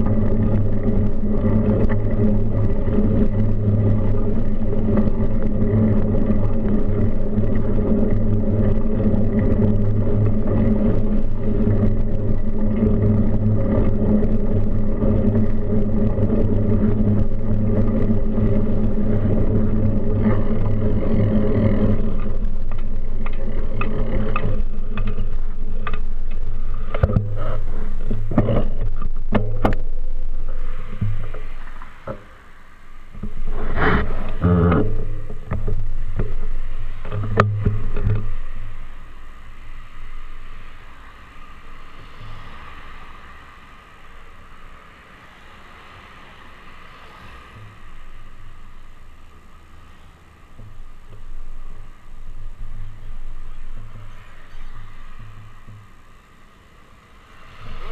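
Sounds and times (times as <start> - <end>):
bike rattles and knocks: 0.0 - 32.4
wind and road noise: 0.0 - 57.9.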